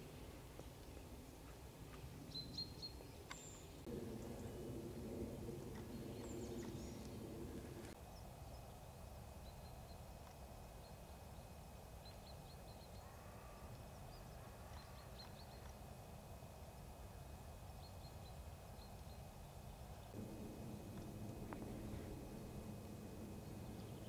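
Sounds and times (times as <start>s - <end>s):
small birds chirping: 0.6s - 4.6s, 5.6s - 8.8s, 17.6s - 24.0s
low droning hum: 2.0s - 8.0s, 12.9s - 24.0s.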